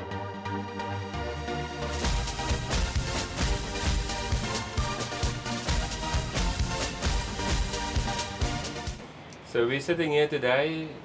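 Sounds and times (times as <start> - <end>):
electronic music with steady beat: 0.0 - 9.0.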